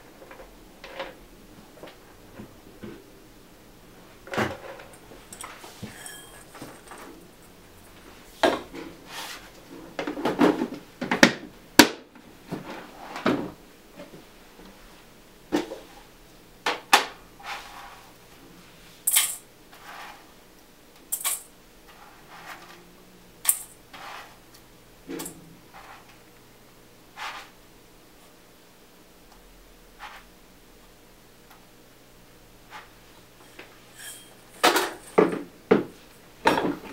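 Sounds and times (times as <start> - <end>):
metal bowl clanking: 5.3 - 7.0.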